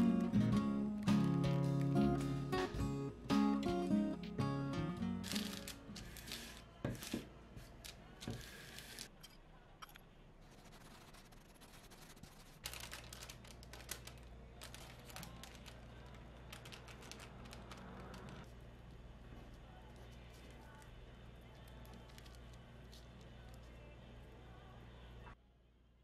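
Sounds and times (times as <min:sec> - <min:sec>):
plastic sheeting crinkling: 0:05.2 - 0:07.2, 0:12.4 - 0:18.2
hand work on parchment paper: 0:05.2 - 0:09.1, 0:10.4 - 0:24.0.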